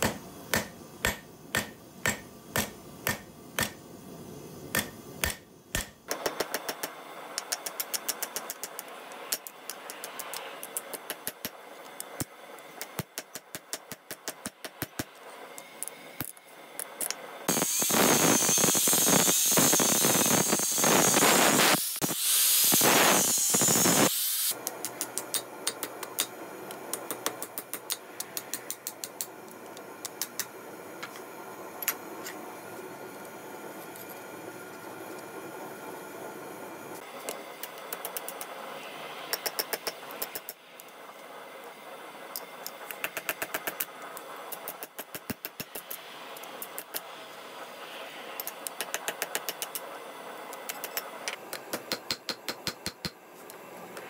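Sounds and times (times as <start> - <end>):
hammer tapping on steel: 0.0 - 3.8, 4.7 - 10.0, 50.8 - 53.2
angle grinder on metal: 17.5 - 24.5.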